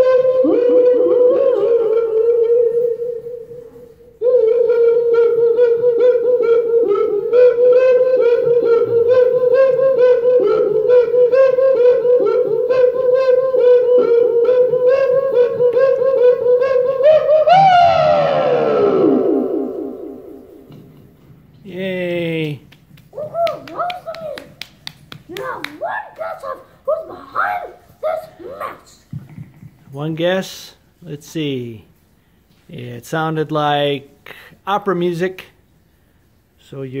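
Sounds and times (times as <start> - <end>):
child singing mock-opera: 0.0 - 20.4, 23.2 - 24.6, 25.3 - 29.2.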